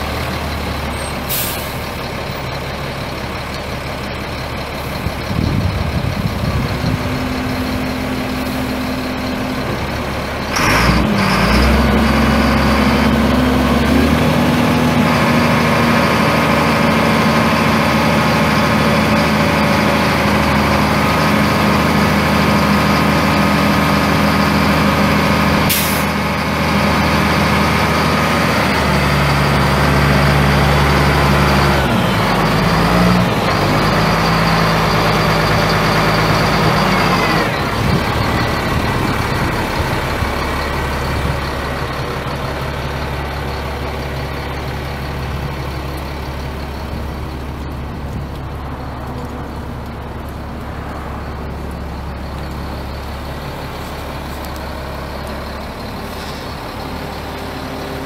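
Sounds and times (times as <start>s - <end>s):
diesel truck engine running: 0.0s - 58.0s
air brake hiss: 1.3s - 1.9s, 25.7s - 26.1s.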